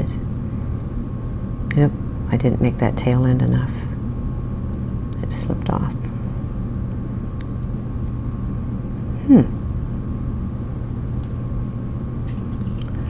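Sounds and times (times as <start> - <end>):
low electrical hum: 0.0 - 13.0
person humming hmm: 9.1 - 9.6.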